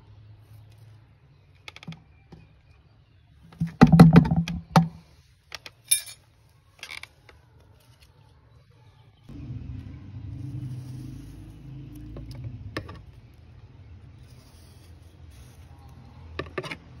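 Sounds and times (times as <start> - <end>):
low steady hum: 9.3 - 16.3.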